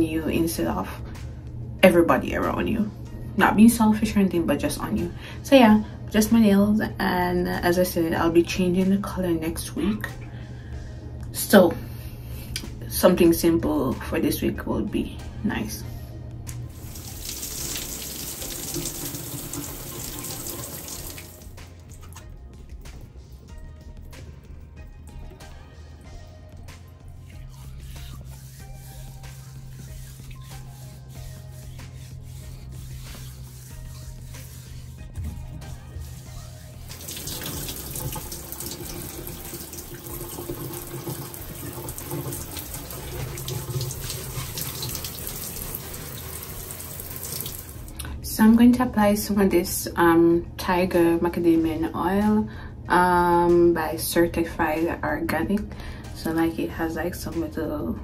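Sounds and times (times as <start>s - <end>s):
shower water splashing hiss: 16.7s - 21.5s, 36.2s - 47.9s.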